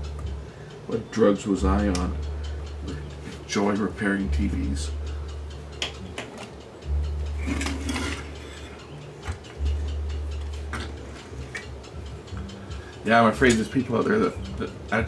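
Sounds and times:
low hum: 4.3s - 13.0s.

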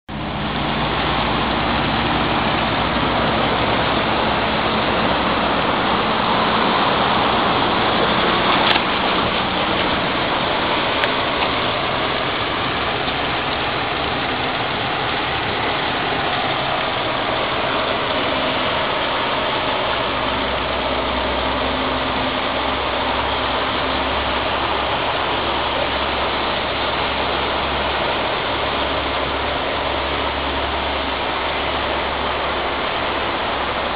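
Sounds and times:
car engine running: 0.1s - 33.9s
water rushing across street: 0.1s - 33.9s.

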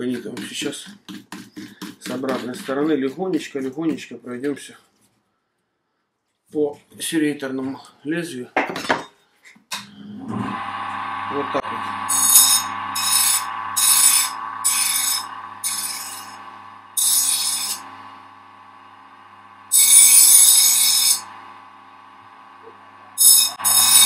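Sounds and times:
bench grinder humming: 10.2s - 24.0s
knife hissing on grinding wheel: 10.5s - 18.7s, 19.6s - 21.6s, 22.6s - 24.0s.

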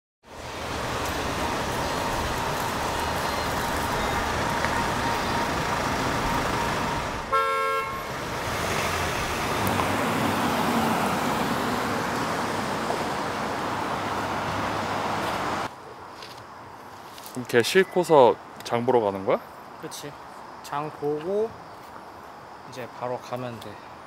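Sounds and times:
city street traffic: 0.2s - 24.0s
car horn honking: 1.2s - 8.2s.

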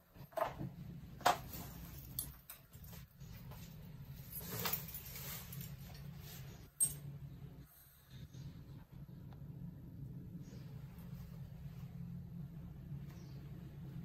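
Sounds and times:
steady low hum: 0.0s - 14.0s
clothes rustling: 1.2s - 6.8s.

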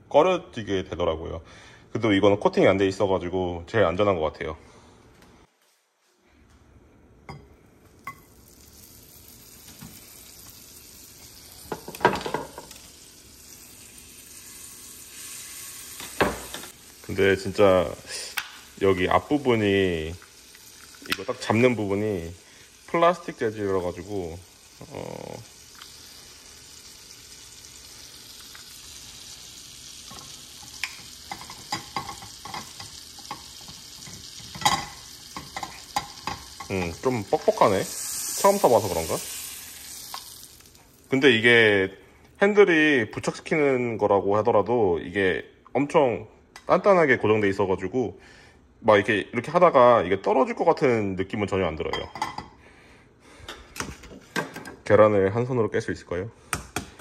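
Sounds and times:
butter sizzling in a frying pan: 8.0s - 41.8s.

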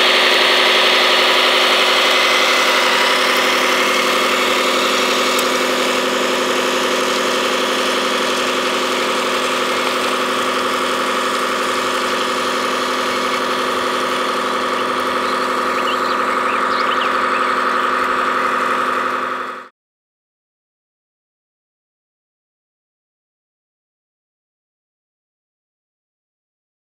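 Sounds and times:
toy engine idling with whine: 0.0s - 19.7s.

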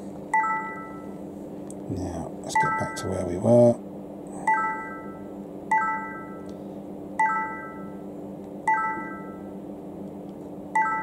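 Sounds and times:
camcorder beep chime: 2.6s - 3.1s, 8.7s - 9.4s, 10.8s - 11.0s.

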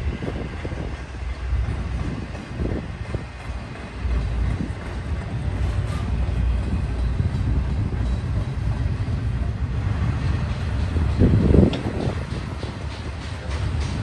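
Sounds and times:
freight train wheels rumbling: 0.0s - 14.0s.

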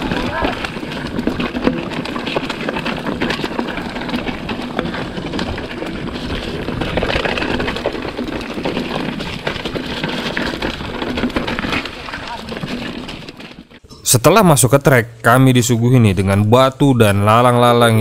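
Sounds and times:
bike chain and frame rattling: 0.0s - 13.9s
bike tyres on dirt: 0.0s - 14.6s.

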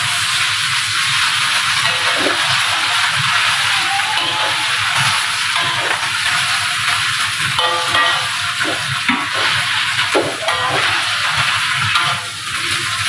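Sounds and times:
greens sizzling in a wok: 0.0s - 13.0s
spatula knocking and scraping pan: 1.8s - 2.8s, 4.2s - 6.5s, 7.6s - 12.2s.

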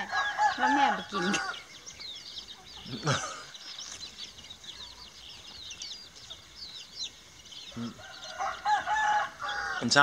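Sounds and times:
rooster crowing: 0.0s - 1.6s, 7.7s - 10.0s
chickens calling: 0.0s - 10.0s
small birds chirping: 0.0s - 10.0s.

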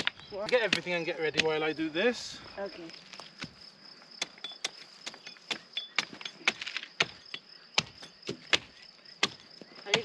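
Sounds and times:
hatchet chopping wood: 0.0s - 1.7s, 4.2s - 10.0s.

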